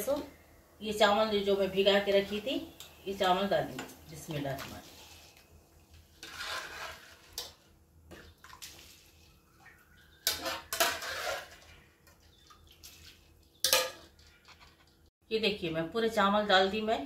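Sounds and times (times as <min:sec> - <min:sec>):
metal pots clinking: 0:10.1 - 0:12.2, 0:13.6 - 0:15.0.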